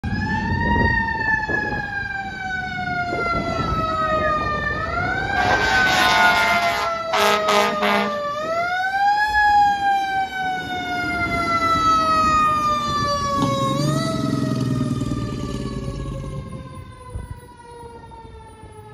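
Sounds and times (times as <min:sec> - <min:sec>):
fire engine siren wailing: 0:00.0 - 0:18.9
air horn blasts: 0:05.3 - 0:08.4.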